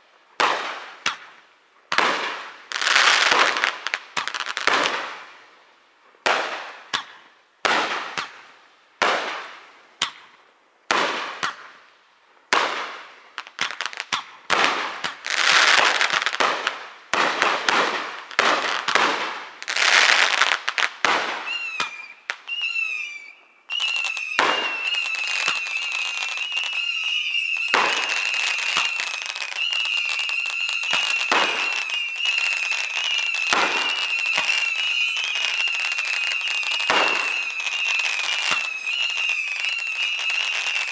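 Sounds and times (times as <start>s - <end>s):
fireworks bursting and crackling: 0.0s - 40.9s
high wavering whistle: 21.5s - 40.9s.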